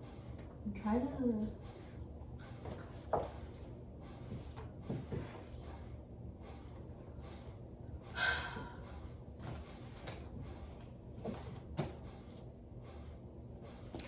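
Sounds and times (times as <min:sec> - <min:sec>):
short breath: 0:08.0 - 0:09.0.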